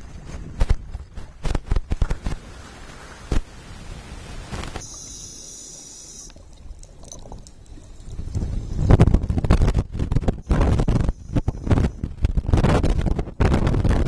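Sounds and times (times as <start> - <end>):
muffled underwater noise: 4.8 - 6.5
water splashing against camera housing: 6.2 - 14.0.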